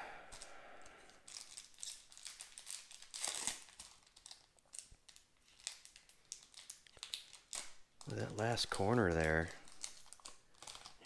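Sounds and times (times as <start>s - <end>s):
foil wrapper crinkling: 1.0s - 11.0s.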